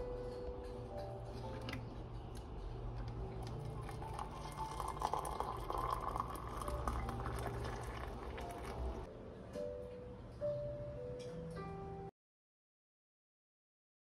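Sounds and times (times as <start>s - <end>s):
water pouring into a mug: 3.4s - 9.1s.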